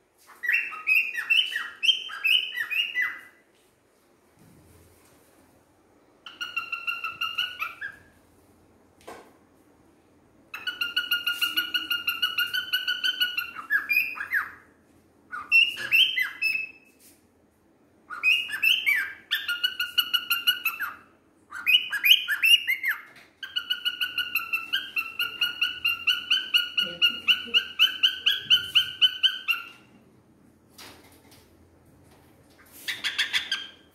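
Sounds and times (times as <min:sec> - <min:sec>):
cockatiel whistling song: 0:00.3 - 0:03.4, 0:06.3 - 0:08.2, 0:10.5 - 0:14.6, 0:15.3 - 0:16.9, 0:18.1 - 0:29.9, 0:32.9 - 0:33.9.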